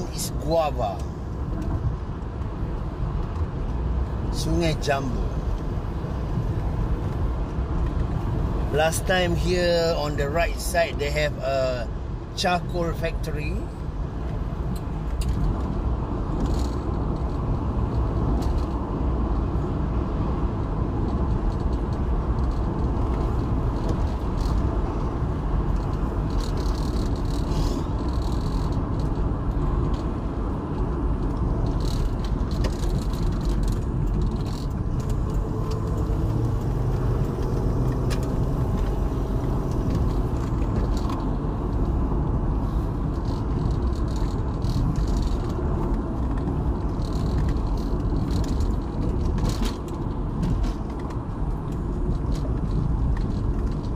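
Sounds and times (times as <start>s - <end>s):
car road and engine noise: 0.0s - 53.9s
light rattles and clicks: 12.4s - 53.9s.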